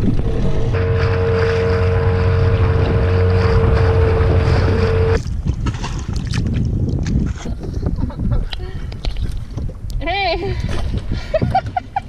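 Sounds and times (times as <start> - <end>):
outboard motor whining: 0.0 - 5.4
wind and water rushing: 0.0 - 12.0.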